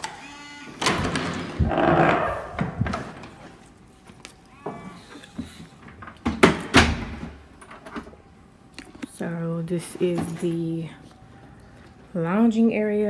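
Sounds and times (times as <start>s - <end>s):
door opening: 0.0s - 3.5s.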